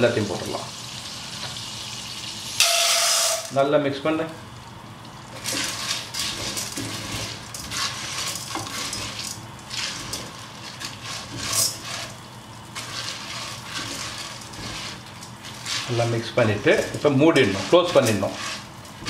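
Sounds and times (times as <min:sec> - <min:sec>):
light sizzle: 0:00.0 - 0:19.0
wooden spatula scraping pot: 0:05.3 - 0:19.0.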